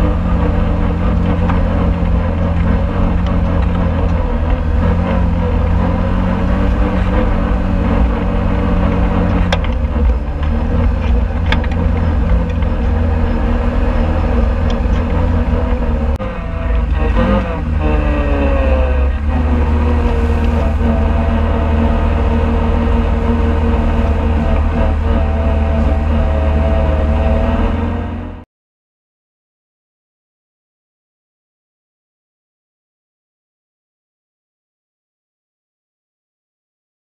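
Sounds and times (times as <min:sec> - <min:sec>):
off-road vehicle engine running: 0:00.0 - 0:28.5.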